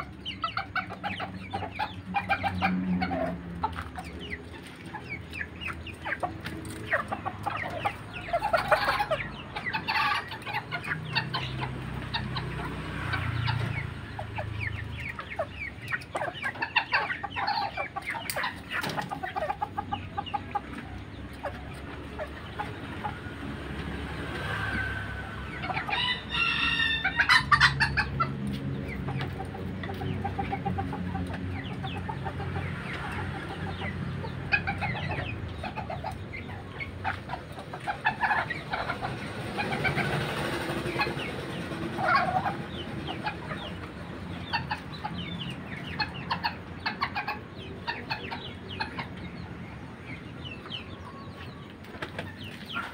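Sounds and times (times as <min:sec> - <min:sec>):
chickens clucking: 0:00.0 - 0:52.9
rooster crowing: 0:24.7 - 0:27.8.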